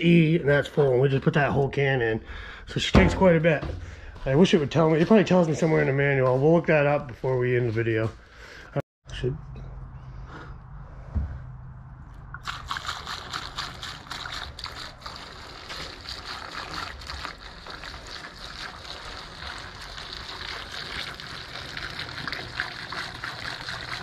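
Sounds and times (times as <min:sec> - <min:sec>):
gasoline pouring through funnel: 0:12.2 - 0:24.0.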